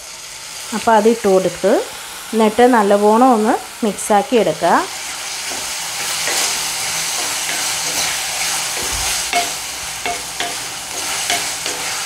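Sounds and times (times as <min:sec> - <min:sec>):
food sizzling: 0:00.0 - 0:12.0
wooden spatula scraping a pan: 0:05.0 - 0:12.0.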